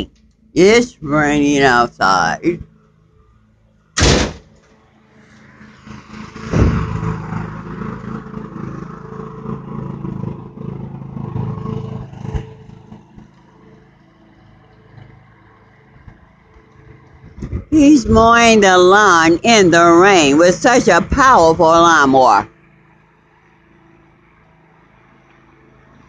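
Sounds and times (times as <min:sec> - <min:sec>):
lawn mower engine running: 0:00.0 - 0:26.0
sharp knock: 0:04.0 - 0:04.6.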